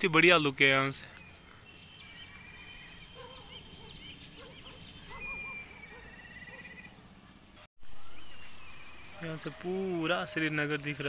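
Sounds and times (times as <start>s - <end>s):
birds calling: 0.0s - 11.0s
thin high bird trills: 1.1s - 7.0s.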